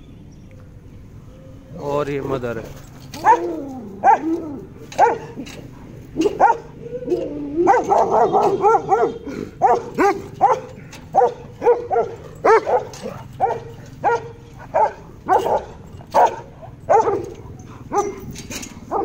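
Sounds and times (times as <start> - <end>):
dog barking: 3.2 - 5.4, 6.2 - 18.3.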